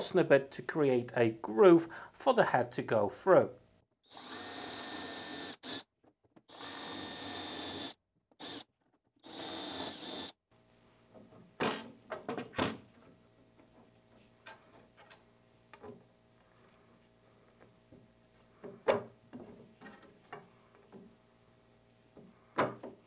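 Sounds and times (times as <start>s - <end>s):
cordless drill boring into chipboard: 4.0s - 5.9s, 6.5s - 10.4s.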